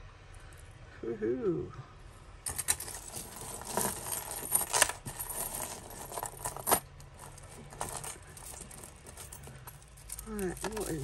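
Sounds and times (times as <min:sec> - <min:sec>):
jewellery clinking and jangling: 0:02.4 - 0:11.0.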